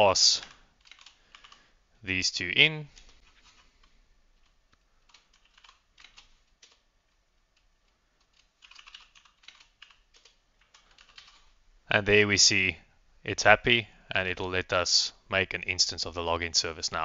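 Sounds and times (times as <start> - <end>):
faint keyboard typing: 0.3 - 1.8, 2.9 - 11.6.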